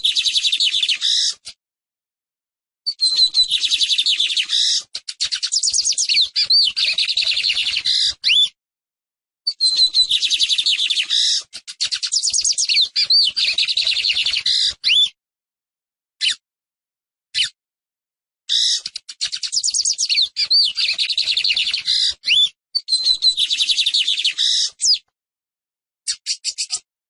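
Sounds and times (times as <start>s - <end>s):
bird singing high twittering: 0.0s - 1.4s, 2.9s - 8.6s, 9.5s - 15.2s, 18.5s - 25.1s, 26.1s - 26.8s.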